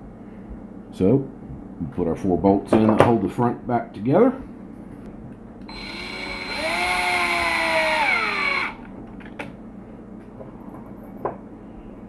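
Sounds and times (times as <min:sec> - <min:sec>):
cordless drill motor whine: 0:05.6 - 0:08.9.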